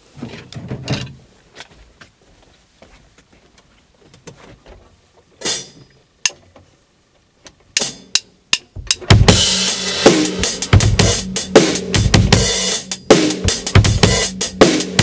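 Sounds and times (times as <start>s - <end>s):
full drum kit playing: 5.4s - 5.8s, 7.8s - 15.0s.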